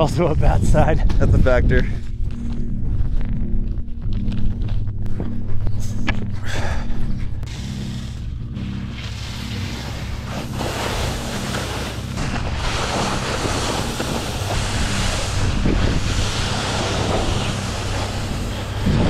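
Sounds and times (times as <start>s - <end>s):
wind buffeting microphone: 0.0s - 6.4s, 12.2s - 19.0s
low sustained drone: 0.0s - 19.0s.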